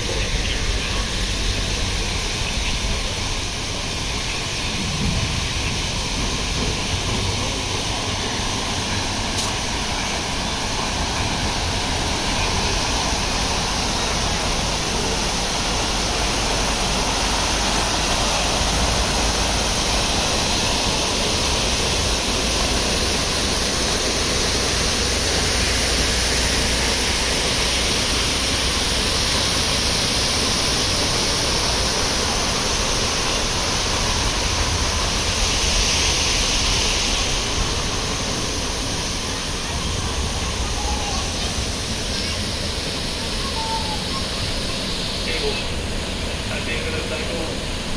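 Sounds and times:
waterfall rushing: 0.0s - 47.9s.

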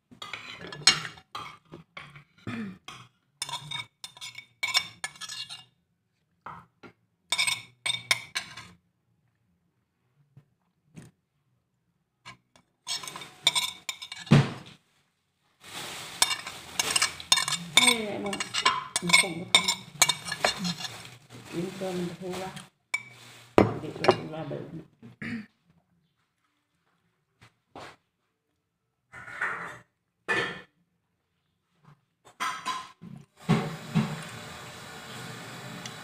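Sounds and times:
spoon scraping ceramic plate: 0.2s - 2.3s, 3.0s - 5.7s, 7.3s - 8.8s, 12.3s - 14.3s, 16.2s - 21.3s, 22.5s - 24.3s.

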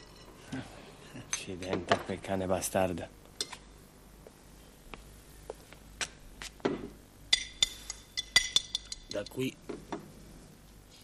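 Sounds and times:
dishes and glassware clinking: 7.3s - 9.4s.

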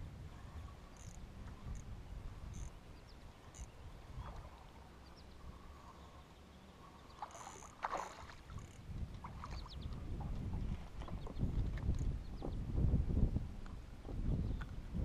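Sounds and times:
low knocks and clicks: 9.8s - 12.6s.

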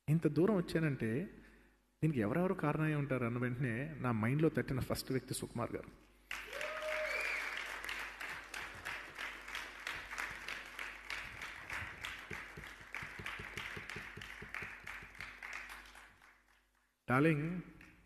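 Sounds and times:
audience applause: 6.3s - 16.6s.

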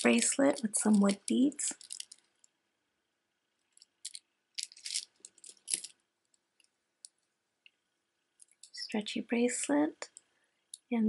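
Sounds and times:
wooden beads clicking: 0.0s - 2.5s, 3.7s - 6.0s.

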